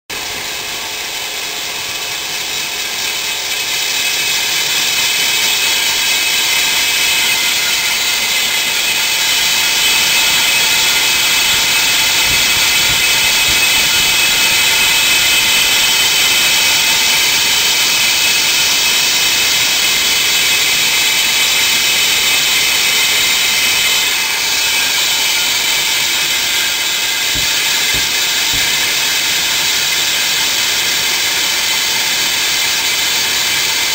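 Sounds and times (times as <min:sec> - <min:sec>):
core drill motor whine: 0:00.1 - 0:33.9
drill bit grinding into wall: 0:00.2 - 0:33.9.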